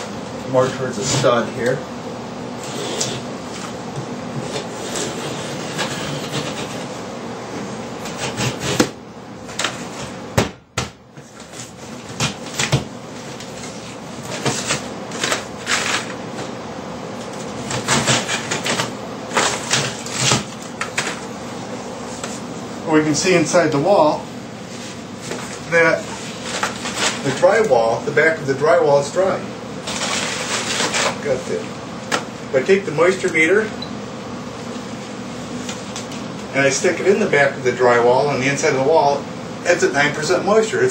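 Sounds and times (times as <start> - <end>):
drywall scraping and crumbling: 11.2 - 16.2, 17.6 - 21.2, 25.2 - 27.6, 29.8 - 31.3.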